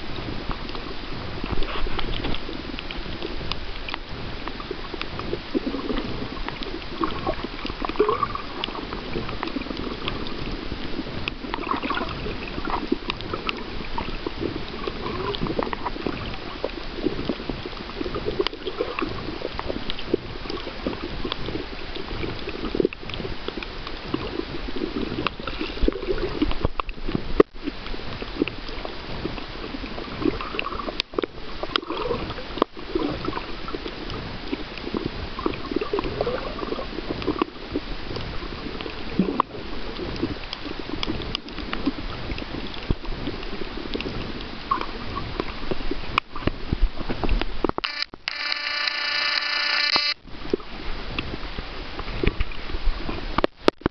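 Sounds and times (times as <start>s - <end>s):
muffled underwater gurgling: 0.0s - 53.8s
small clicks: 47.6s - 50.2s.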